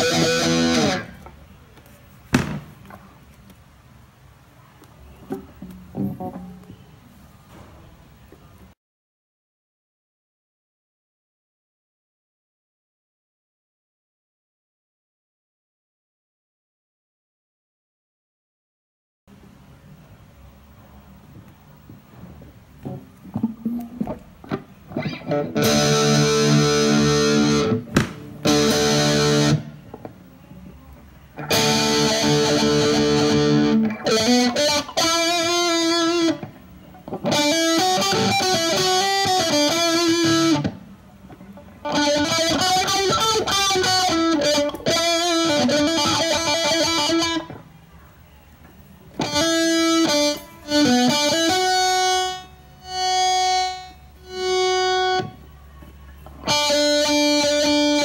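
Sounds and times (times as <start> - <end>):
distorted electric guitar: 0.0 - 1.3, 5.2 - 6.8, 21.9 - 30.2, 31.3 - 47.7, 49.2 - 55.5, 56.2 - 58.0.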